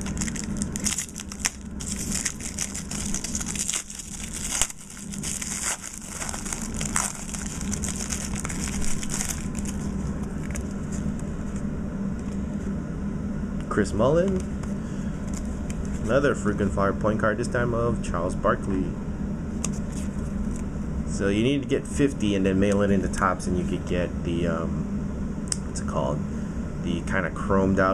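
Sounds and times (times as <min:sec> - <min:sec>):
foil wrapper tearing and crinkling: 0:00.0 - 0:10.8.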